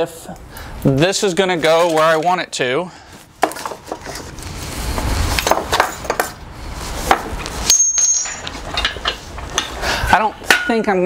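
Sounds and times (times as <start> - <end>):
metal clanks and knocks: 7.1 - 9.8.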